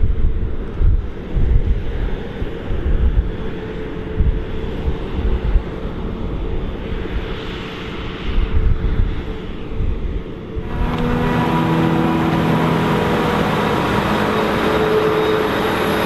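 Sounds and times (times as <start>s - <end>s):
wind buffeting microphone: 0.0s - 7.2s
forage harvester droning: 10.6s - 16.0s
tractor running: 10.6s - 16.0s.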